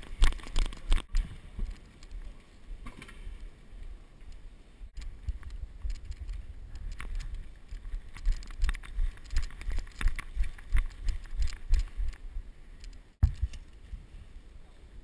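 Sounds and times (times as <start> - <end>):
gear clicking and rattling: 5.0 - 13.8
running footsteps on concrete: 7.0 - 12.2.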